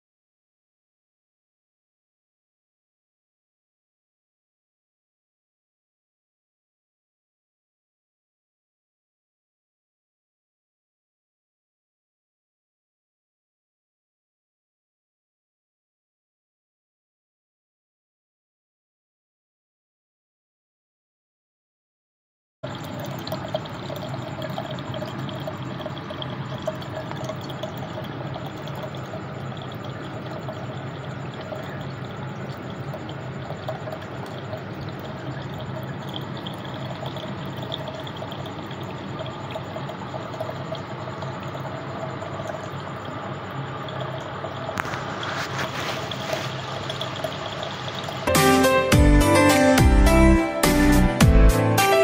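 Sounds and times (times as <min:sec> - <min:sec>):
pump motor hum: 0:22.6 - 0:52.0
fountain water splashing: 0:43.9 - 0:48.3.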